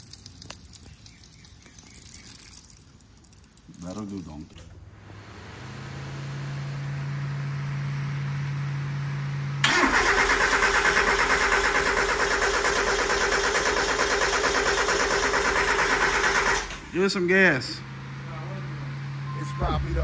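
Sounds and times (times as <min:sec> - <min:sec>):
engine starter cranking: 0:09.6 - 0:16.9
low hum: 0:16.9 - 0:20.0.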